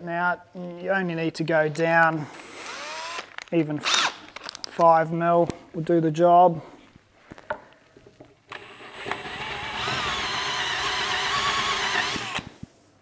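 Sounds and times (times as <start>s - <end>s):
cordless drill boring into plastic: 2.6s - 3.3s, 8.5s - 12.6s.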